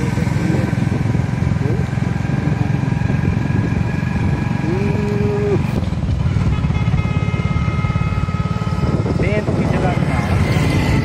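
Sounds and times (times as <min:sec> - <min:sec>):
road and wind noise: 0:00.0 - 0:11.0
vehicle engine rumble: 0:00.0 - 0:11.0.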